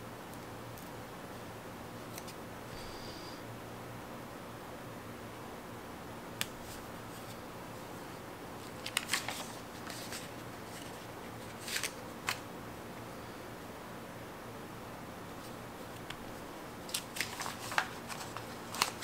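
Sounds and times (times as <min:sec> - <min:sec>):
faint steady hiss: 0:00.0 - 0:19.0
paper crackling: 0:08.6 - 0:12.4, 0:16.8 - 0:19.0.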